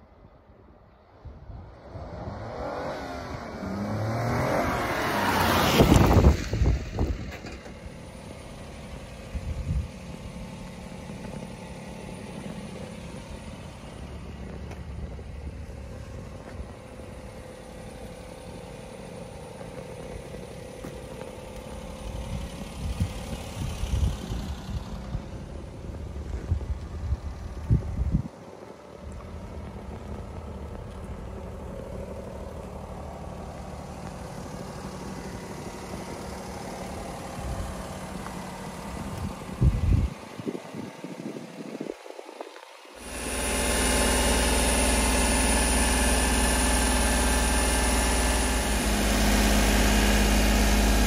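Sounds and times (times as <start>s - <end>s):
loud rising vehicle sound: 0.2s - 41.8s, 42.8s - 51.0s
truck engine idling: 6.0s - 41.7s, 42.8s - 51.0s.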